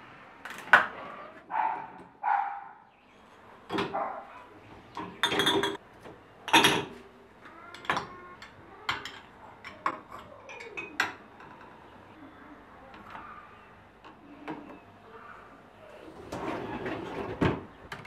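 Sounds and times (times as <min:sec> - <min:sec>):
glass jars and cups clinking: 0:05.0 - 0:05.8, 0:06.5 - 0:07.0, 0:07.7 - 0:11.7.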